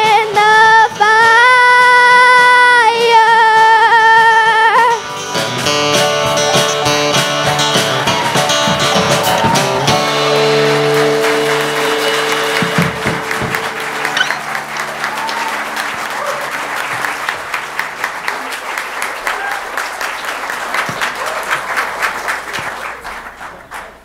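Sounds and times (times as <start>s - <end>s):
gospel instrumental chords: 0.0s - 19.2s
congregation applause: 5.4s - 24.0s.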